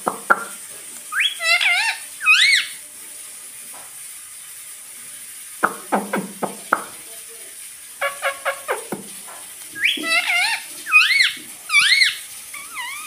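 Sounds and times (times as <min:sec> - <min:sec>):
parakeet chirping: 0:00.0 - 0:02.8, 0:05.6 - 0:06.7, 0:08.0 - 0:09.0, 0:09.8 - 0:13.0.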